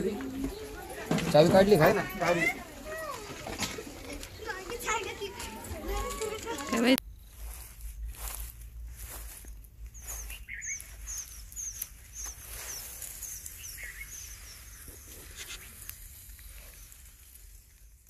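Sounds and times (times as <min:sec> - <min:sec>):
rustle of cloth and grass: 0:00.0 - 0:18.0
bird chirping high: 0:09.9 - 0:15.8.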